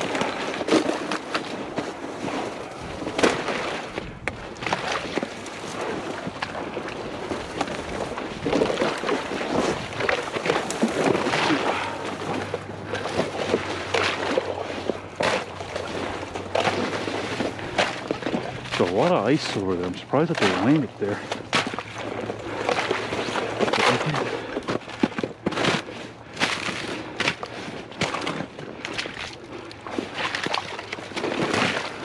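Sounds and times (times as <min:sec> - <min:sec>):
low steady hum: 0:00.0 - 0:32.0
water sloshing and splashing: 0:00.0 - 0:32.0
wind on microphone: 0:01.6 - 0:13.9.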